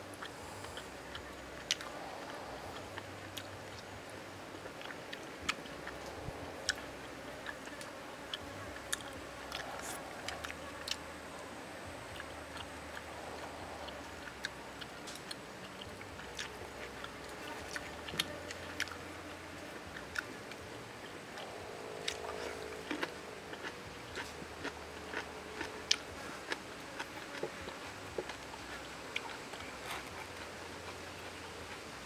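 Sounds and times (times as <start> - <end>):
outdoor background hiss: 0.0 - 32.0
chewing clicks and crunches: 19.9 - 31.8.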